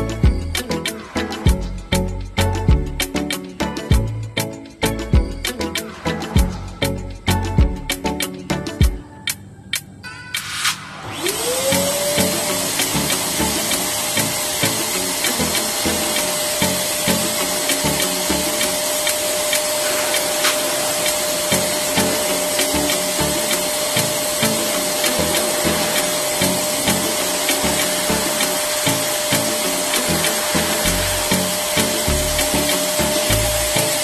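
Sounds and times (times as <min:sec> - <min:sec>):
electric balloon pump whining: 0:00.0 - 0:34.0.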